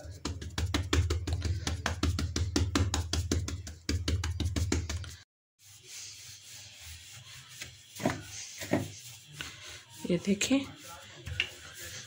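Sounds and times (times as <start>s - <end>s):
fingers patting dough on board: 0.0s - 5.2s
rolling pin rubbing over dough: 0.0s - 12.0s.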